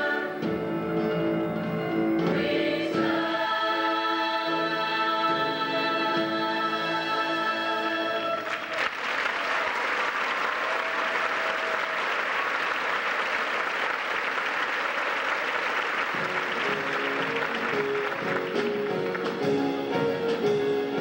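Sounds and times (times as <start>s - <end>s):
audience applauding: 8.4s - 19.7s
band music: 16.0s - 21.0s.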